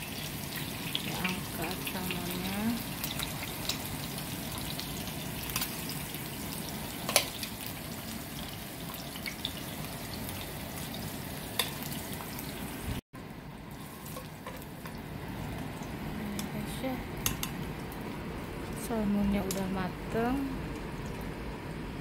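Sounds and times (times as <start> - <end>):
oil sizzling in a frying pan: 0.0 - 21.4
metal tongs clicking on pan: 7.0 - 7.4, 11.6 - 11.8, 16.4 - 16.6, 17.2 - 17.6, 19.4 - 19.7.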